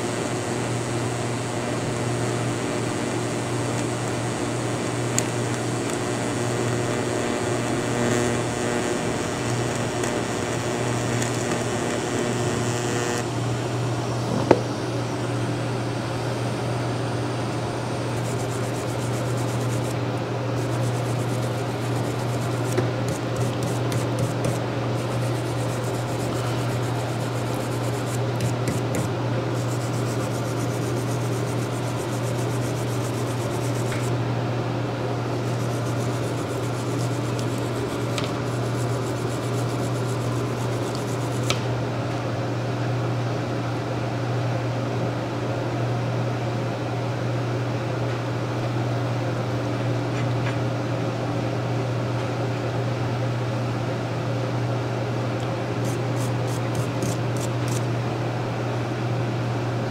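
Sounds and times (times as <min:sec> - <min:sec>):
low mechanical hum: 0:00.0 - 0:59.9
hand abrasive rubbing on steel: 0:18.2 - 0:19.9, 0:20.6 - 0:34.1, 0:35.4 - 0:41.5, 0:55.8 - 0:57.8.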